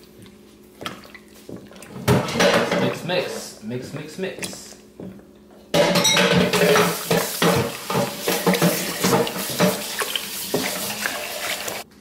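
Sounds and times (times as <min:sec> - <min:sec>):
chopsticks whisking in metal bowl: 0:06.4 - 0:11.8
batter sloshing: 0:06.4 - 0:11.9.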